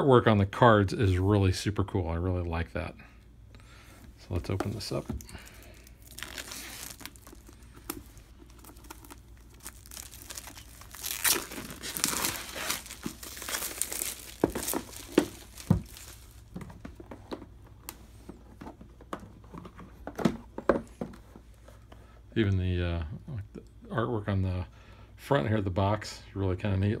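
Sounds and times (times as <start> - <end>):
plastic wrap crinkling: 4.3 - 16.9.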